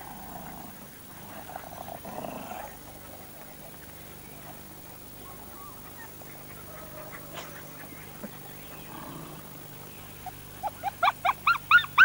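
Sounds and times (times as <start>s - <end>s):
steady low hum: 0.0s - 12.0s
puppies whimpering: 10.1s - 12.0s.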